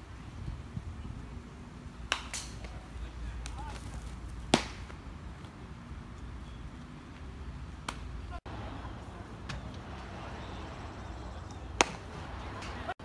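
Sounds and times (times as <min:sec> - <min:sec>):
outdoor background noise: 0:00.0 - 0:13.0
baseball bat cracks: 0:02.1 - 0:02.8, 0:04.5 - 0:04.9, 0:11.8 - 0:12.8.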